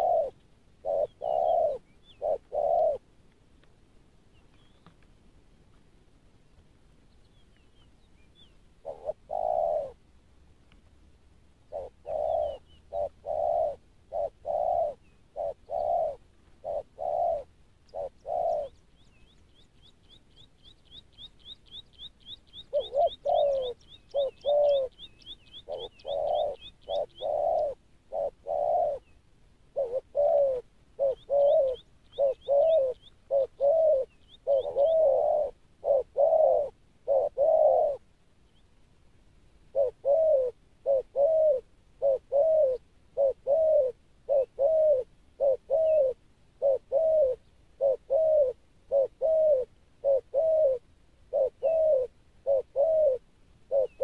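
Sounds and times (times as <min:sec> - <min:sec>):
doves cooing: 0:00.0 - 0:03.1, 0:08.8 - 0:10.1, 0:11.7 - 0:18.8, 0:22.5 - 0:38.0, 0:39.7 - 0:54.0.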